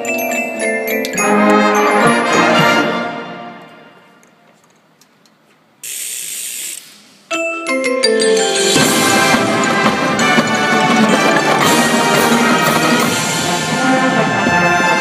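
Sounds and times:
marching band playing: 1.1 - 4.1, 8.4 - 15.0
burst of hiss: 5.8 - 7.2.

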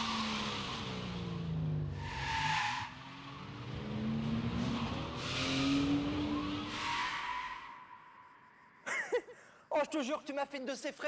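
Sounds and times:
car engine noise: 0.0 - 8.0
tyres skidding and squealing: 0.0 - 8.8.

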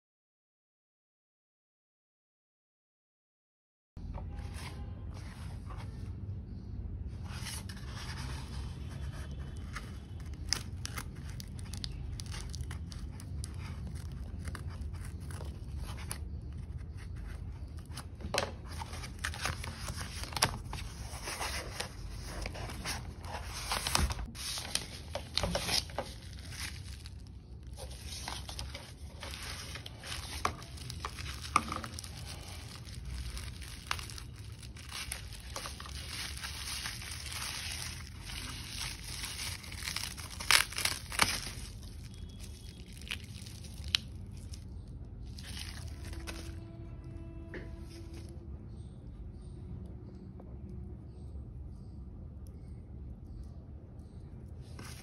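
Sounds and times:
plastic tearing and crinkling: 8.9 - 46.8.

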